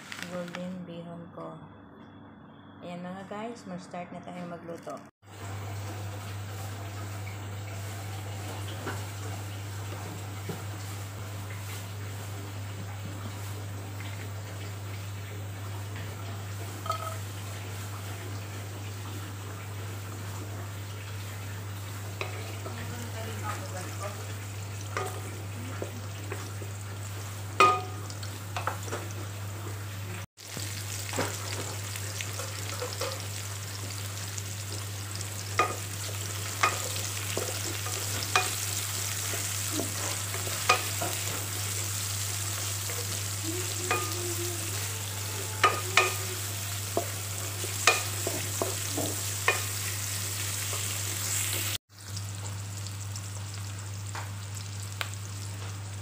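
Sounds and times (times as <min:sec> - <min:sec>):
garlic and onion sizzling in oil: 0:05.2 - 0:56.0.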